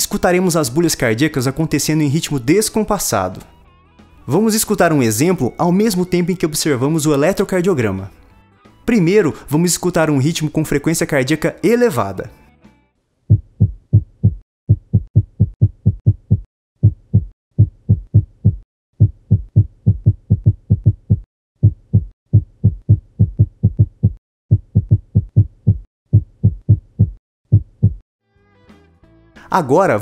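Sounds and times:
irregular heartbeat: 13.3 - 28.0.

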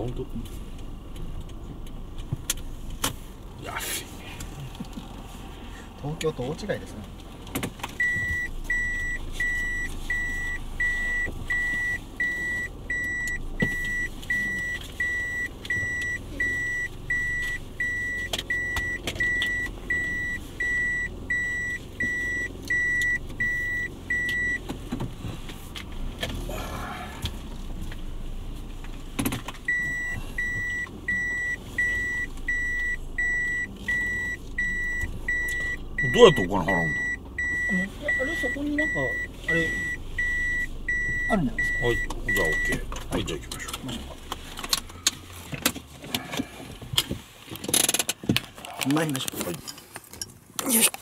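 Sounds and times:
car warning chime beeping: 7.9 - 24.8, 29.6 - 43.8.

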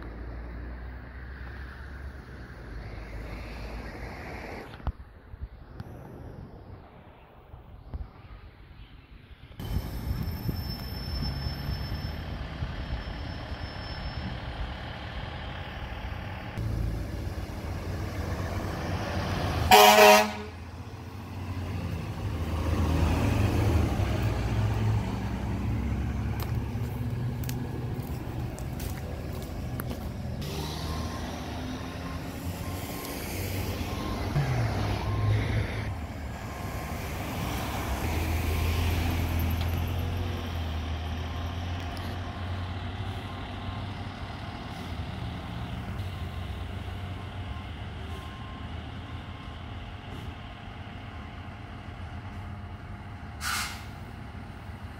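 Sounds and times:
fire engine diesel engine driving by: 9.4 - 54.9
loud horn blast: 19.6 - 20.7.

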